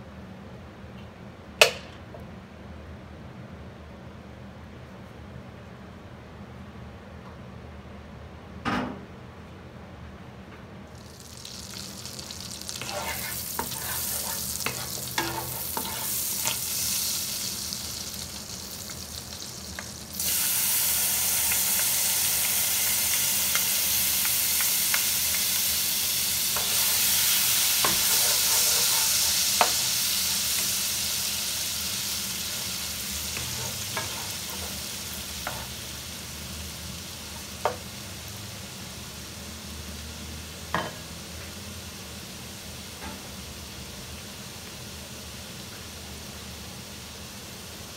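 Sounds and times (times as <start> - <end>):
oil and garlic sizzling: 10.9 - 47.9.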